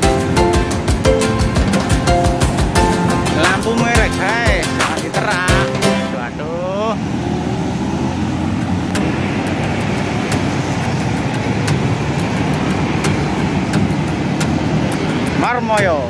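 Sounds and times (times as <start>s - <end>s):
street traffic rumble: 0.0s - 16.0s
sharp clicks: 8.6s - 16.0s.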